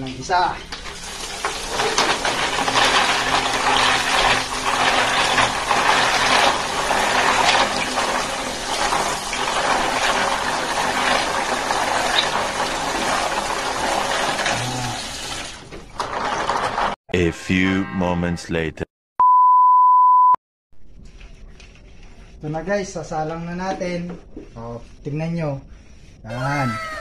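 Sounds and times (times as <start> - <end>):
tap water pouring into basin: 0.7 - 16.6.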